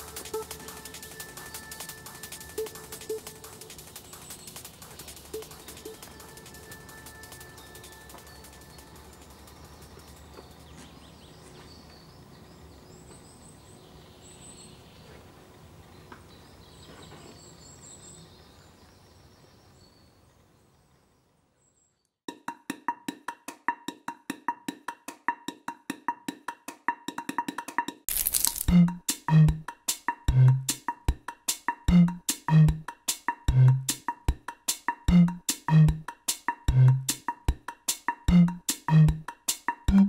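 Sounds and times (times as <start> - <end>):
music with fast clicking beat: 0.0 - 10.9, 22.3 - 40.0
faint outdoor ambience: 0.0 - 21.9.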